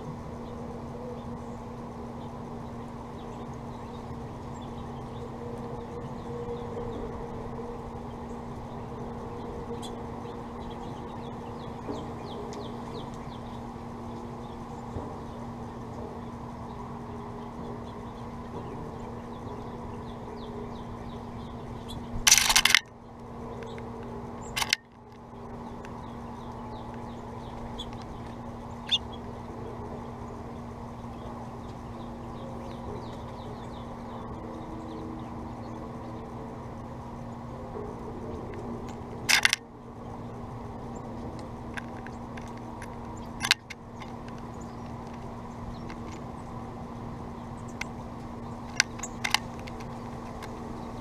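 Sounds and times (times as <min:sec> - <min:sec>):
steady low hum: 0:00.0 - 0:51.0
bird rattling seed in feeder: 0:22.3 - 0:22.9, 0:24.5 - 0:25.2, 0:39.2 - 0:39.6.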